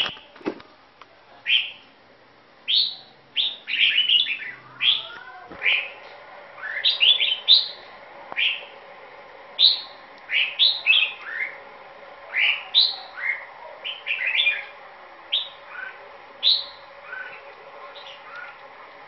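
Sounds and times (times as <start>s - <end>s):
bird singing whistled phrases: 2.7s - 5.9s.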